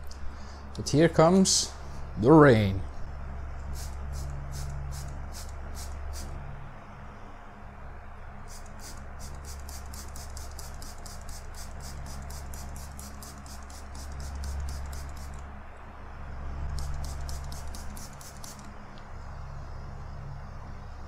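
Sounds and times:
electric fan humming: 0.0s - 21.0s
spray bottle squirting: 3.7s - 6.3s, 8.5s - 15.4s, 16.7s - 18.7s.

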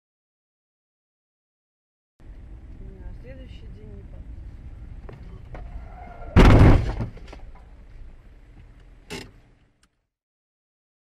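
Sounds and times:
low road rumble: 2.2s - 10.1s
car collision bang: 6.0s - 7.3s.

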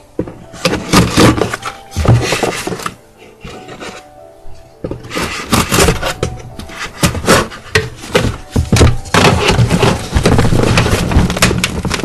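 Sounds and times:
rubbing over cardboard box: 5.0s - 12.0s.

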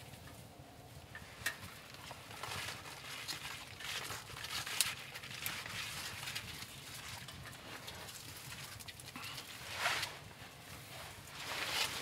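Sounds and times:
dry twigs crackling and snapping: 1.1s - 10.2s.

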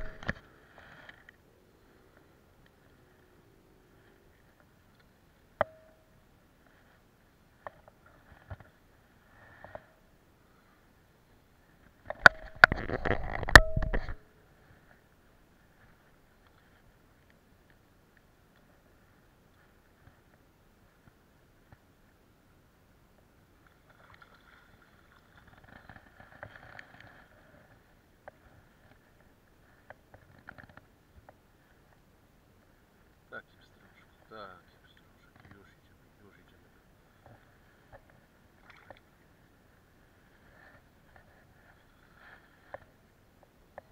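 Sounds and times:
fishing tackle clicks and knocks: 0.0s - 0.4s, 12.0s - 14.2s.

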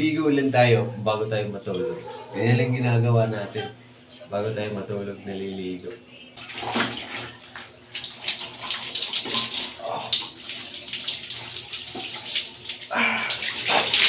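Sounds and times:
water splashing on concrete floor: 6.4s - 14.0s.

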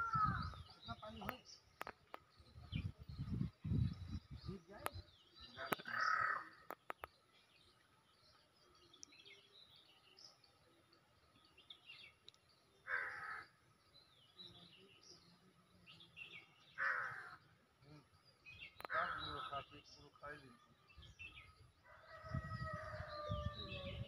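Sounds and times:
small birds chirping: 0.0s - 24.0s
crow cawing: 5.8s - 6.5s, 12.8s - 13.5s, 16.8s - 17.4s, 18.8s - 19.5s.

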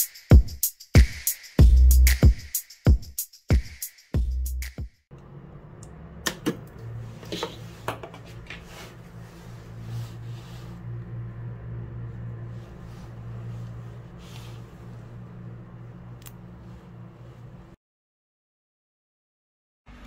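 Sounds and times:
cooling fan humming: 5.1s - 17.8s.

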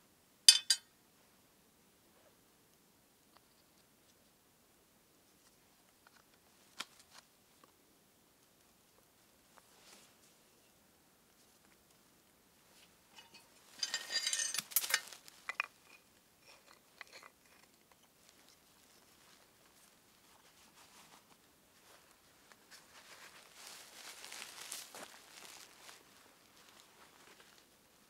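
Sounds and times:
crackling handling noises: 5.3s - 7.8s, 8.4s - 28.0s.

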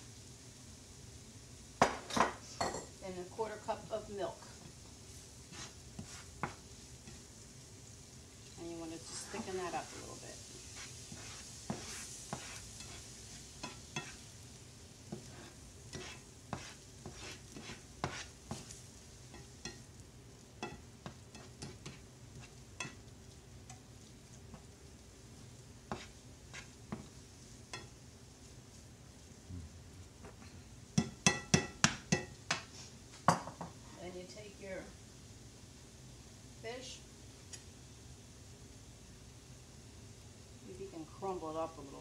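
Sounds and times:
faint sizzle: 0.0s - 42.0s
spoon scraping in skillet: 1.8s - 33.8s, 37.3s - 37.8s
spoon tapping pan: 5.5s - 7.3s, 10.8s - 14.3s, 15.1s - 24.8s, 25.8s - 28.0s, 31.0s - 32.7s, 33.3s - 33.8s, 37.5s - 37.7s.

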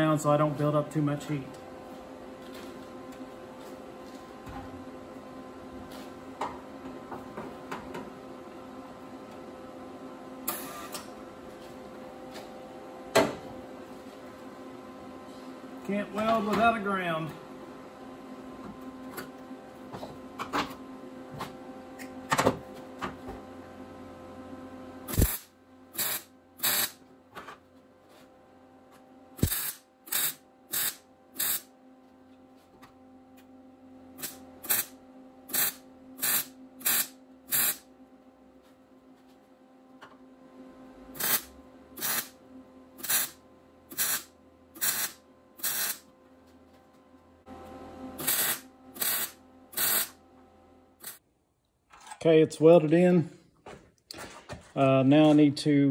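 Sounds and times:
steady hum: 0.0s - 55.9s
wire welder bursts: 10.4s - 11.0s, 25.1s - 27.0s, 29.4s - 31.7s, 34.2s - 37.9s, 41.2s - 42.4s, 43.0s - 46.1s, 48.2s - 50.2s, 51.0s - 51.2s.

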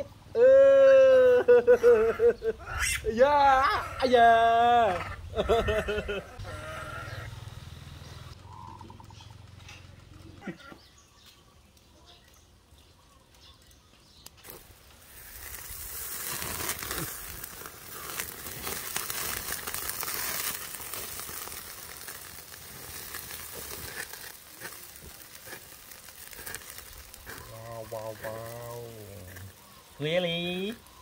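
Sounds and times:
juices hissing on coals: 0.0s - 31.0s
small pops from fire: 13.2s - 30.0s
eels sizzling over charcoal: 13.3s - 31.0s.

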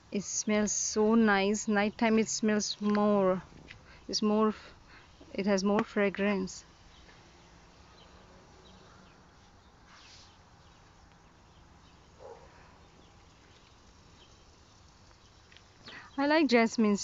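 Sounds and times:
distant bird chirps: 5.8s - 17.0s.

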